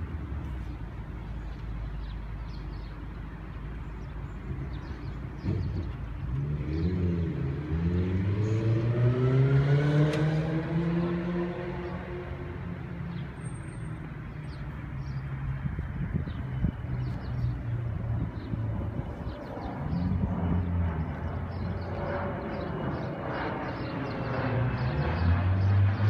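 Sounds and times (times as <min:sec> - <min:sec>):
car driving past: 0:05.4 - 0:13.2.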